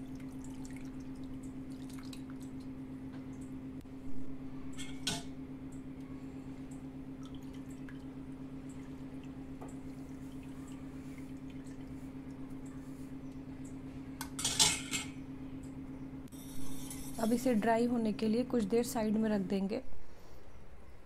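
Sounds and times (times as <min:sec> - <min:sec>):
water dripping into pot: 0:00.0 - 0:03.6, 0:06.7 - 0:12.7
steady low hum: 0:00.0 - 0:21.0.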